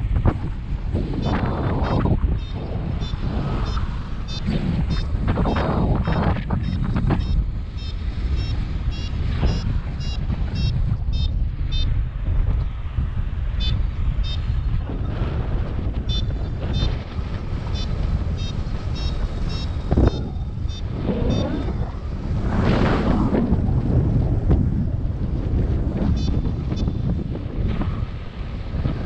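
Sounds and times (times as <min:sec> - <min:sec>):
wind buffeting microphone: 0:00.0 - 0:29.0
variometer beeping: 0:01.2 - 0:12.0, 0:13.6 - 0:14.5, 0:16.0 - 0:17.0, 0:17.7 - 0:22.1, 0:26.1 - 0:27.1.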